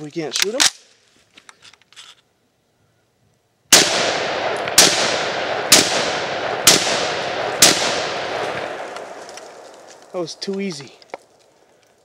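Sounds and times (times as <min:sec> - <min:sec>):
rifle shots: 0:03.7 - 0:09.8.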